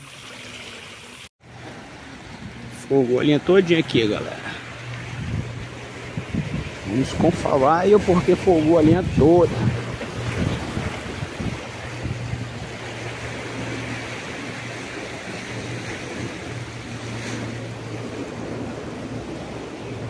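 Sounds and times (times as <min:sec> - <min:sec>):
sea surf: 0:01.4 - 0:20.0
wind rumbling on microphone: 0:04.7 - 0:20.0.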